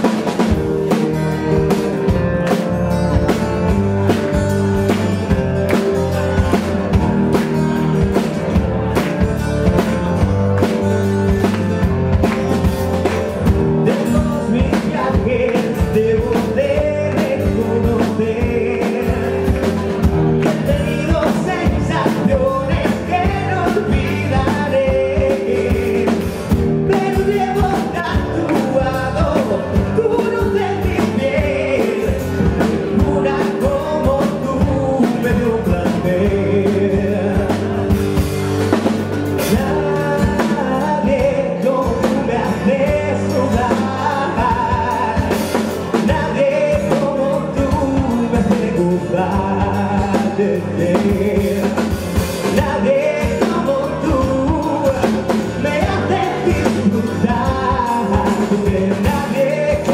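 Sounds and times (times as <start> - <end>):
rock band playing live: 0.0 - 59.9
man singing into microphone: 13.5 - 38.2, 39.4 - 59.9.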